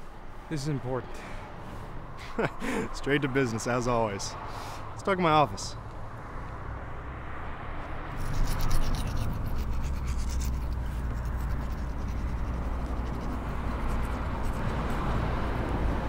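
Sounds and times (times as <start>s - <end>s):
toothbrush scrubbing teeth: 8.2s - 15.1s.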